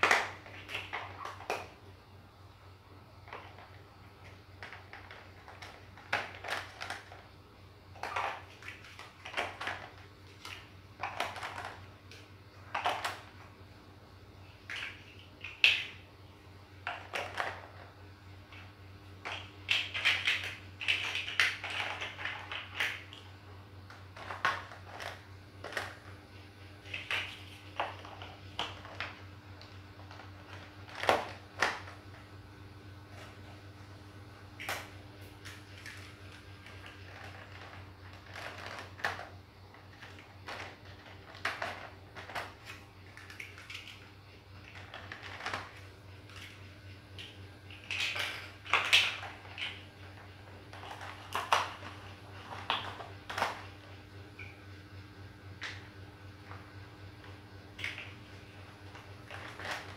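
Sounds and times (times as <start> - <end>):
plastic toy blocks clicking: 0.0 - 1.7, 4.6 - 7.2, 19.3 - 23.1, 47.8 - 49.8.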